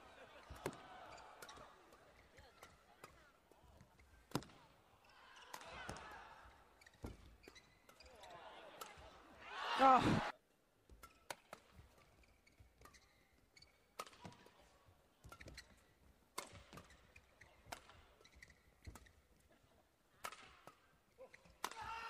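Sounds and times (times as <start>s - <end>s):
badminton racket hitting shuttlecock: 10.9s - 14.6s, 15.2s - 19.2s, 20.2s - 22.0s.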